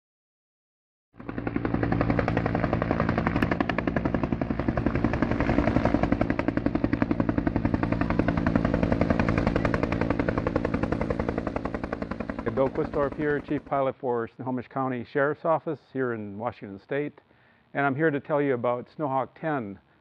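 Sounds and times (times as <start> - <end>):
helicopter rotor beating: 1.2 - 14.0.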